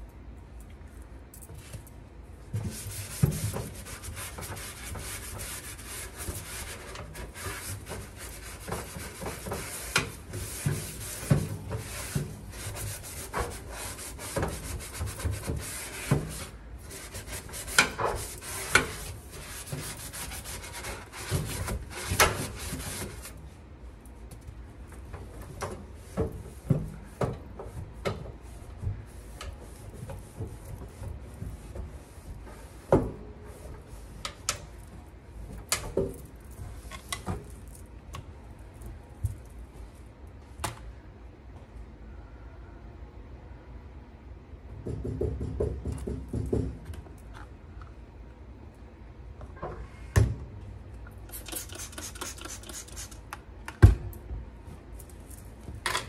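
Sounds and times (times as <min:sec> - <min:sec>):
scrub pad scrubbing metal: 0:02.6 - 0:23.3.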